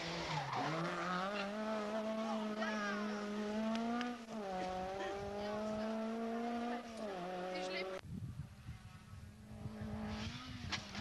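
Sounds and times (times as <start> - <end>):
rally car engine at high revs: 0.0 - 8.0, 9.4 - 11.0.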